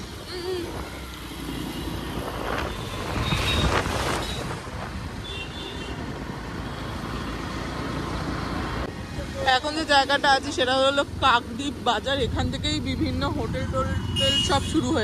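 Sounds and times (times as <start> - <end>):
wind noise: 2.0 - 5.2.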